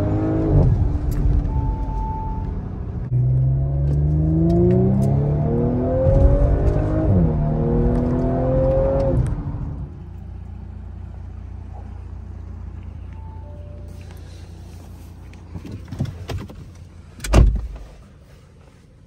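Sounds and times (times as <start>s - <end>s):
car engine accelerating from inside: 0.0s - 10.2s.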